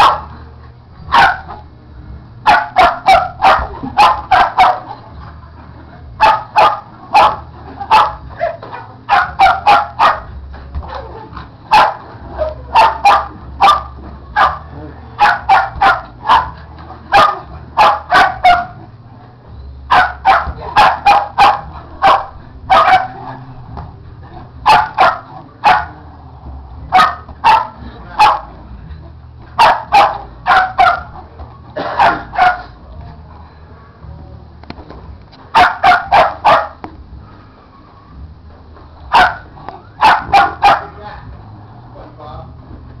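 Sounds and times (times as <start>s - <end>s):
dog barking excitedly: 0.0s - 0.4s, 1.1s - 1.6s, 2.4s - 5.0s, 6.2s - 18.8s, 19.9s - 23.3s, 24.6s - 26.0s, 26.9s - 28.6s, 29.6s - 31.2s, 31.8s - 32.8s, 35.5s - 36.8s, 39.1s - 41.3s.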